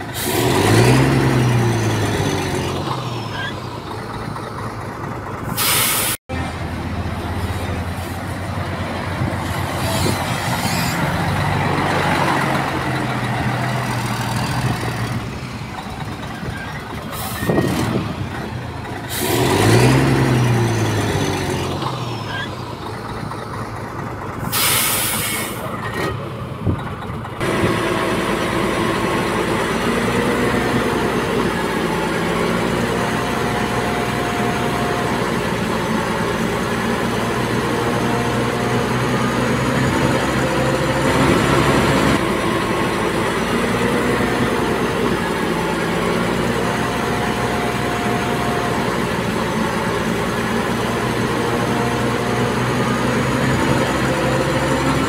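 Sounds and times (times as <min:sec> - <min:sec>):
engine revving: 0:00.0 - 0:03.6, 0:06.3 - 0:16.4, 0:17.2 - 0:22.6, 0:27.4 - 0:55.0
heavy diesel machinery running: 0:00.0 - 0:55.0
air hiss: 0:05.6 - 0:06.2, 0:24.5 - 0:25.6.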